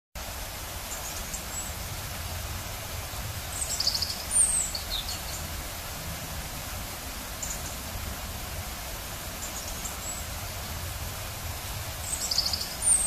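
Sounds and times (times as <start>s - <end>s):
bird chirps: 12.1s - 13.0s.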